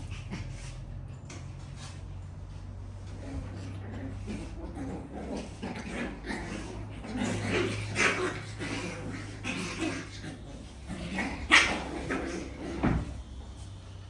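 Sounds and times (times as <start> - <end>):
puppies barking and yipping: 3.5 - 13.5.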